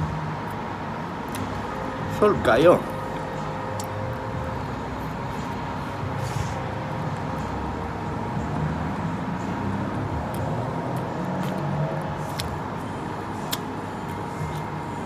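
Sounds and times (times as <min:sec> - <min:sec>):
background rumble and hum: 0:00.0 - 0:15.0
chewing food: 0:09.7 - 0:15.0.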